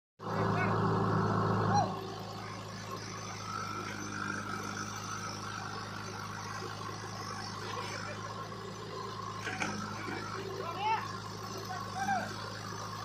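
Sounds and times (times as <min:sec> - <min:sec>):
diesel engine under load: 0:00.2 - 0:13.0.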